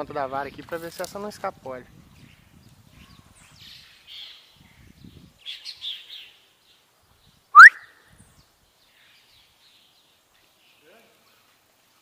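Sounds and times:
loud upward-sweeping whistle: 7.6s - 7.9s
faint bird chirps: 7.6s - 8.0s.

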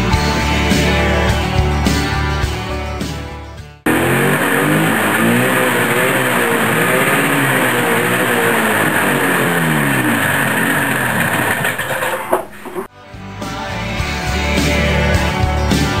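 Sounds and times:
snowmobile engine running unevenly: 3.9s - 12.9s.

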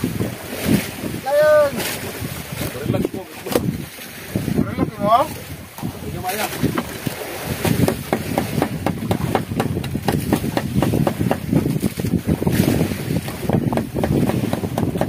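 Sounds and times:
water against boat hull: 0.0s - 15.0s
wind on microphone: 0.0s - 15.0s
short knocks: 7.6s - 11.7s.

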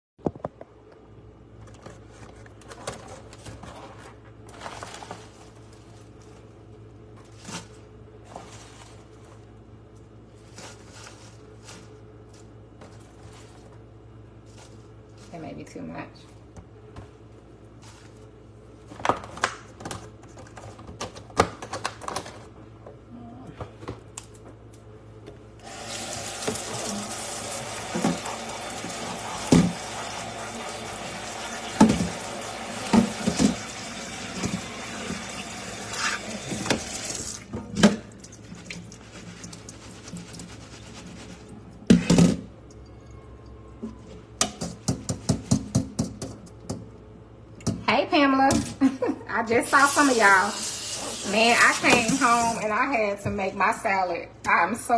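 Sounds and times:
faucet running into steel sink: 25.6s - 37.5s, 49.7s - 52.6s.

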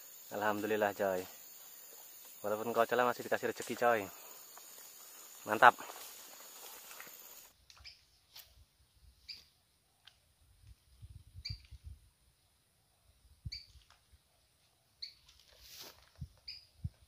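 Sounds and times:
quiet outdoor ambience: 0.0s - 17.0s
small bird chirping: 6.4s - 8.1s, 9.2s - 9.6s, 11.4s - 11.8s, 13.4s - 13.8s, 15.0s - 15.3s, 16.4s - 16.9s.

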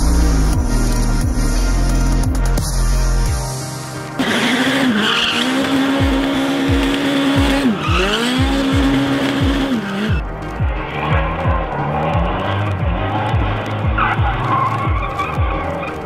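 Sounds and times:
tyres squealing: 4.2s - 10.2s, 10.9s - 16.0s
race car engine revving: 4.2s - 16.0s.

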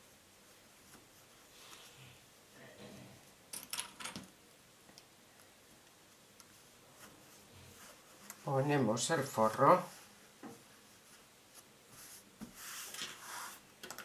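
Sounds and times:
fabric rustling: 6.1s - 13.6s.

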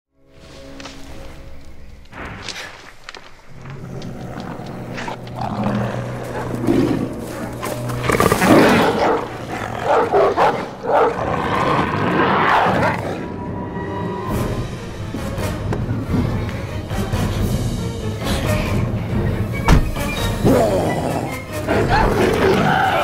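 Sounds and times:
monster dog snarling and roaring: 3.6s - 13.5s, 20.4s - 23.0s.

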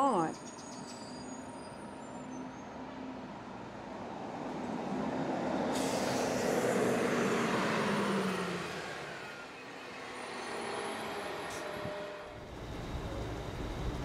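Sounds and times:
vehicle passing by: 6.2s - 9.4s.

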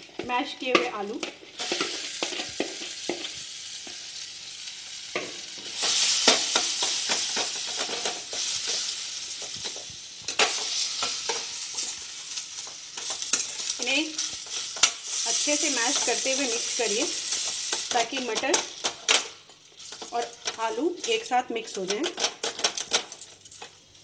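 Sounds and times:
food sizzling in oil: 0.0s - 24.0s
steel spoon clinking and scraping pan: 5.2s - 21.4s.

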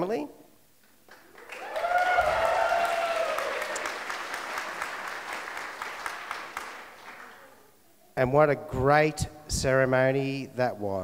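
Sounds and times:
people applauding: 1.1s - 7.5s
person cheering: 1.5s - 4.0s.

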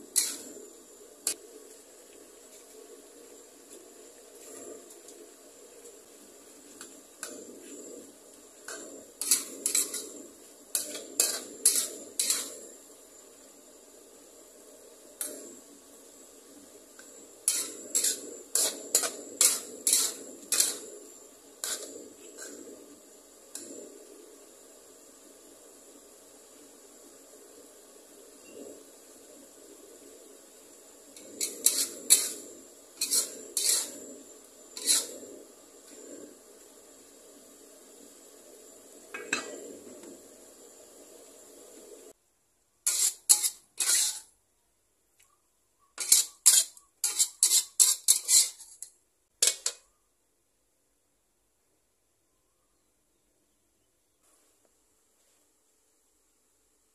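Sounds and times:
metal spatula scraping wok: 0.0s - 1.6s, 2.3s - 24.5s, 30.3s - 36.9s, 42.8s - 44.3s, 45.9s - 49.8s
faint hiss from pan: 0.0s - 42.2s, 42.8s - 44.4s, 46.0s - 49.9s
metal spatula clanking on wok: 10.7s - 12.6s, 17.5s - 20.8s, 49.4s - 49.8s.

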